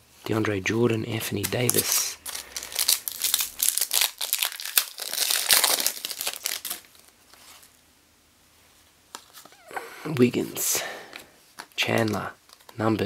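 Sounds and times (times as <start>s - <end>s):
plastic wrapper crinkling and tearing: 1.4s - 7.7s, 11.6s - 12.8s.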